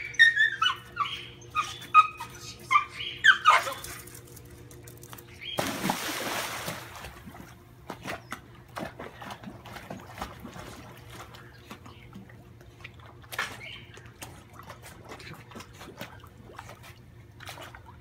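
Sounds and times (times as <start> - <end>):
puppy crying excitedly: 0.0 - 4.0
dog splashing into pool: 5.4 - 11.8
small paddling splashes: 5.6 - 18.0.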